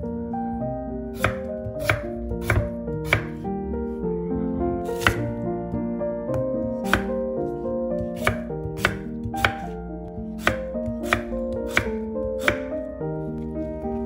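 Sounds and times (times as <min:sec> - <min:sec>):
soft background music: 0:00.0 - 0:14.0
knife chopping on wooden board: 0:01.2 - 0:03.4, 0:04.9 - 0:05.4, 0:06.3 - 0:07.2, 0:08.0 - 0:12.8.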